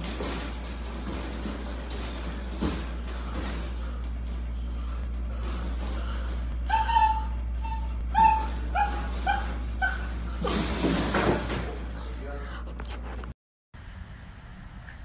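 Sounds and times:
puppy scuffling: 0:00.0 - 0:07.0, 0:08.1 - 0:13.3
puppy yipping and whimpering: 0:04.5 - 0:10.7.

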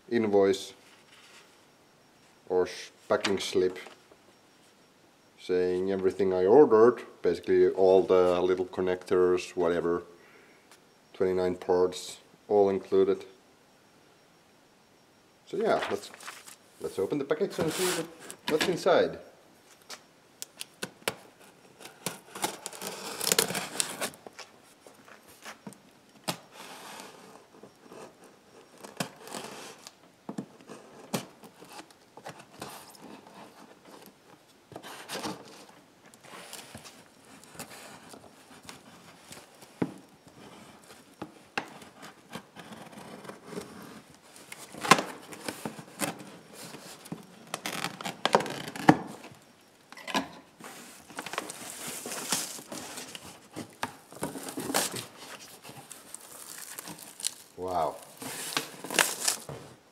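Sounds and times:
cardboard scraping and crinkling: 0:17.5 - 0:18.7, 0:34.8 - 0:49.2, 0:50.6 - 0:59.8
tape tearing: 0:21.9 - 0:24.2, 0:47.6 - 0:49.0, 0:54.2 - 0:59.5.

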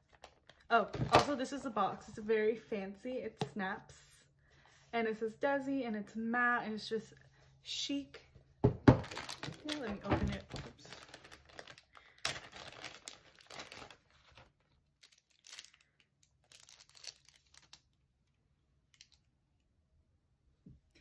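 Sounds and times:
wrapping crinkling and rustling: 0:00.0 - 0:01.4, 0:09.0 - 0:18.0.

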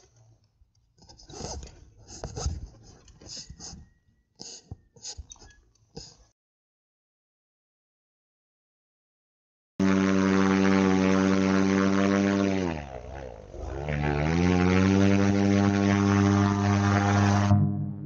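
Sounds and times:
paramotor engine and propeller drone: 0:09.8 - 0:18.0.

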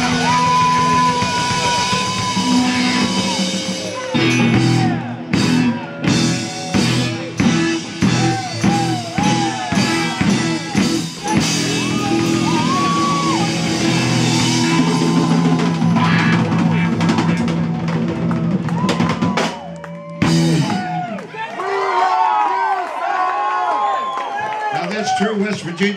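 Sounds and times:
bent electric guitar notes: 0:00.0 - 0:19.5
drum beat: 0:00.0 - 0:21.1
live rock band playing: 0:00.0 - 0:21.1.

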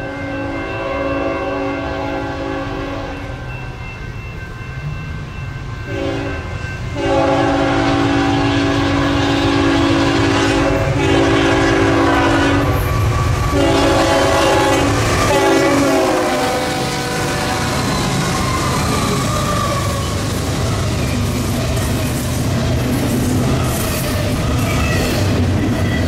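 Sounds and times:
locomotive air horn blasts: 0:00.0 - 0:03.3, 0:05.9 - 0:18.3
train rumbling past: 0:00.0 - 0:26.0.

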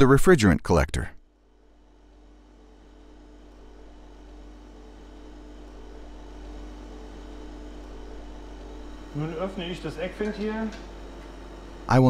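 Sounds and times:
refrigeration compressor hum: 0:01.0 - 0:12.0.

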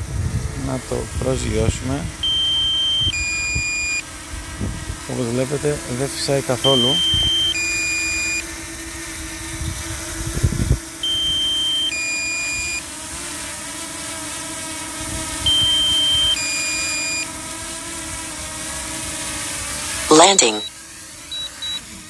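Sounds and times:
two-tone warning beep: 0:02.3 - 0:04.0, 0:15.5 - 0:17.2, 0:21.4 - 0:21.8.

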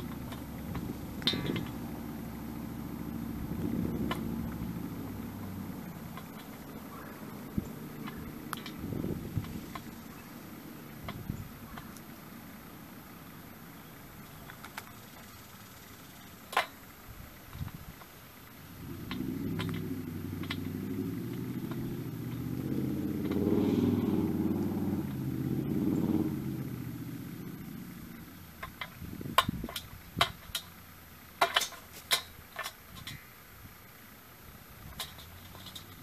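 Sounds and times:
crow pecking metal bowl: 0:00.0 - 0:02.0
vehicle engine passing: 0:00.0 - 0:14.2, 0:18.6 - 0:28.6.

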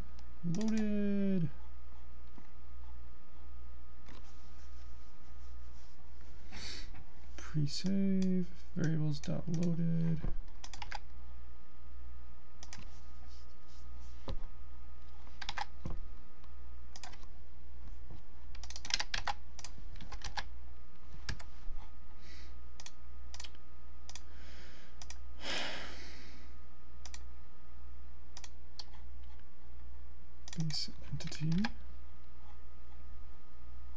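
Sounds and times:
steady low hum: 0:00.0 - 0:33.9
keyboard and mouse clicks: 0:00.5 - 0:00.9, 0:10.4 - 0:11.1, 0:12.6 - 0:12.9, 0:15.3 - 0:16.0, 0:16.9 - 0:17.3, 0:18.5 - 0:20.5, 0:21.2 - 0:21.5, 0:22.8 - 0:24.3, 0:28.4 - 0:29.4, 0:30.4 - 0:31.8.

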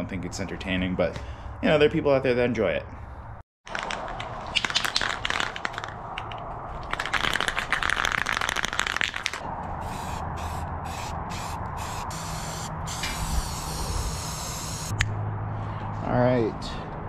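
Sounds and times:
aerosol can ball rattling: 0:03.7 - 0:13.6
spray can hissing: 0:09.8 - 0:14.9.

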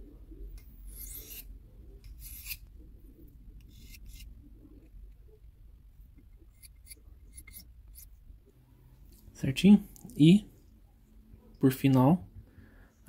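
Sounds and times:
knife blade rasping on sharpening stone: 0:00.9 - 0:01.5, 0:02.1 - 0:02.6, 0:06.5 - 0:08.1.

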